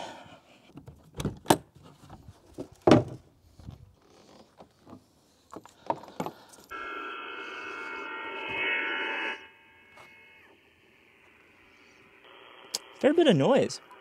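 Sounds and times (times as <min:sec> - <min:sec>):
radio band noise: 0:06.7 - 0:14.0
steady radio tones: 0:06.7 - 0:14.0.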